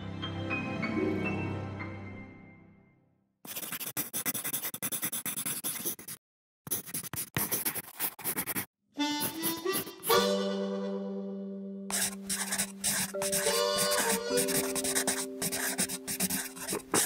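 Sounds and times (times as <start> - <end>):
music: 0.0 - 3.3, 9.0 - 17.0
brush strokes on paper: 11.9 - 17.0.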